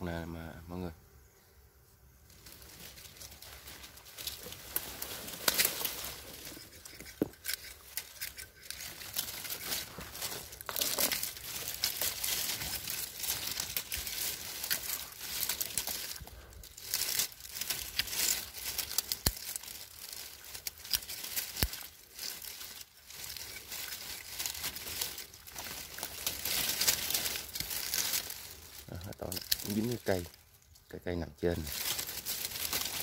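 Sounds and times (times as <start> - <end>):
twigs and leaves rustling: 2.1 - 33.0
pruning shears clicking: 4.2 - 30.2.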